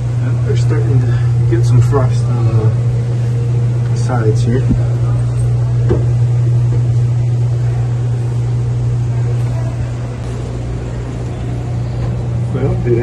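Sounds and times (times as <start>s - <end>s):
refrigeration unit humming: 0.0s - 13.0s.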